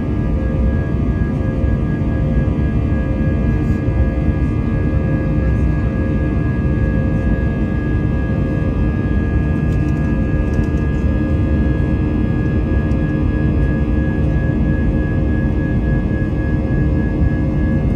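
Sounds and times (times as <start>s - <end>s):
jet engines rumbling and whining: 0.0s - 17.9s.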